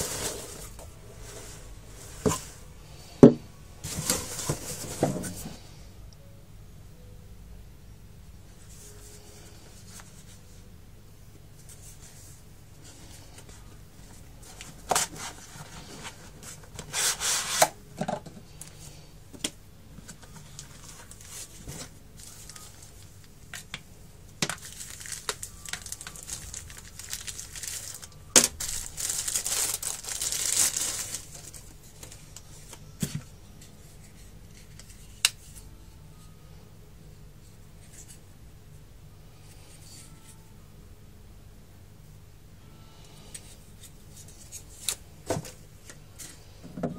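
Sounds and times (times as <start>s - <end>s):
plastic bag and cardboard rustling: 0.0s - 5.7s, 11.6s - 19.0s, 20.0s - 23.8s, 24.4s - 35.2s.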